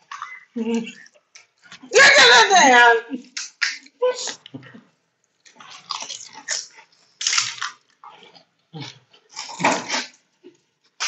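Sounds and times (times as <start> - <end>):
crisp shells crunching and chewing: 5.3 - 11.0.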